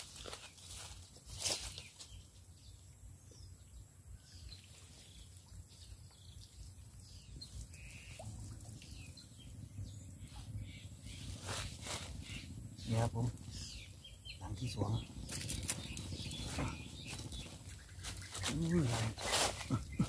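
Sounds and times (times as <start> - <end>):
bird chirps: 1.6 - 20.0
wind rumble on microphone: 5.7 - 20.0.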